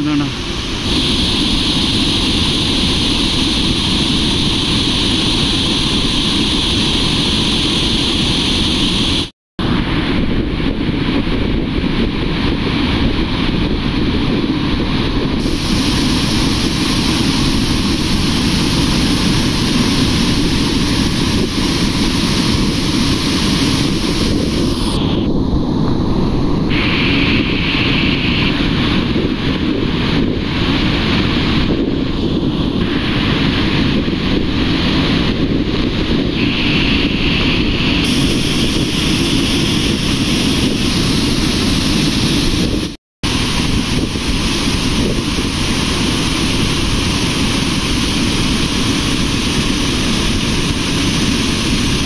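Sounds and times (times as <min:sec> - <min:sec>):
wind buffeting microphone: 0:00.0 - 0:52.0.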